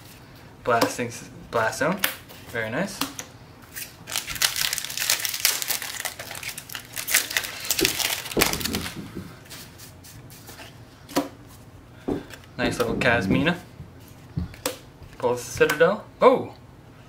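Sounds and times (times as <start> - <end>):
foil wrapper tearing and crinkling: 3.8 - 9.0
wrapper rustling: 3.8 - 9.8.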